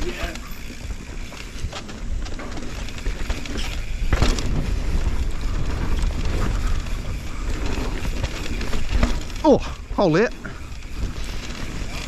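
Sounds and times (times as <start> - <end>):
bike tyre and frame rattle: 0.0 - 12.0
wind buffeting microphone: 0.0 - 12.0.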